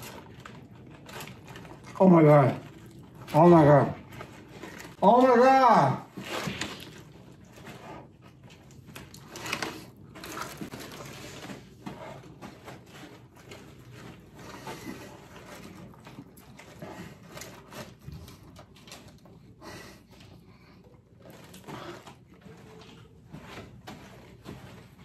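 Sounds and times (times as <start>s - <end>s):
chewing food: 0.0s - 5.0s, 6.6s - 25.0s
paper box rustling: 0.0s - 19.2s.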